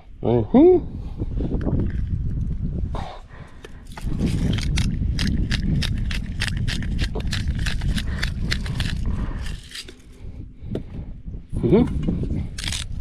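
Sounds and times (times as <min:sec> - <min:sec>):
spice grinder crunching clicks: 0:03.9 - 0:10.0, 0:12.6 - 0:13.0.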